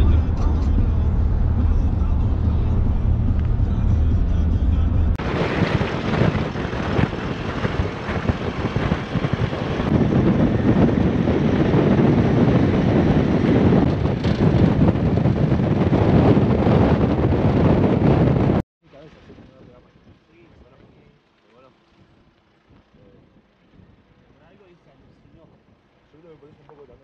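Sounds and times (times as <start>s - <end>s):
engine drone inside car: 0.0s - 7.1s
truck road rumble: 0.0s - 26.8s
wind buffeting microphone: 0.0s - 27.0s.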